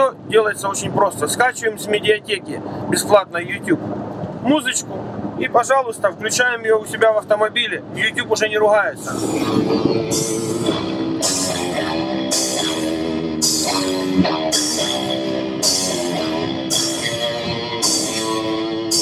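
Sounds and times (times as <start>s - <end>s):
drum kit beat: 9.1s - 19.0s
electric guitar: 9.1s - 19.0s
cymbal hits: 10.1s - 19.0s.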